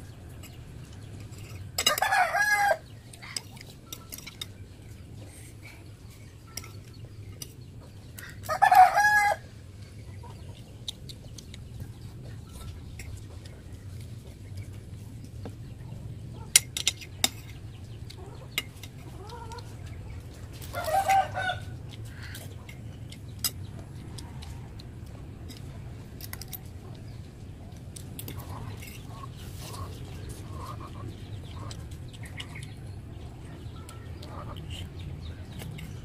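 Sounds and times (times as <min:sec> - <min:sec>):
low background hum: 0:00.0 - 0:36.0
chicken clucking: 0:06.0 - 0:14.7, 0:17.5 - 0:27.5, 0:28.2 - 0:36.0.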